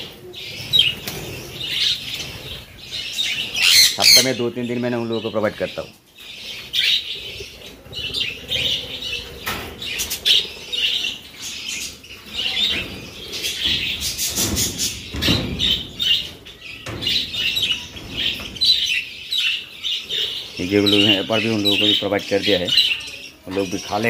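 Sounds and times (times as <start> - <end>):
parrots chirping and chattering: 0.0 - 24.0
wings flapping: 0.6 - 2.6.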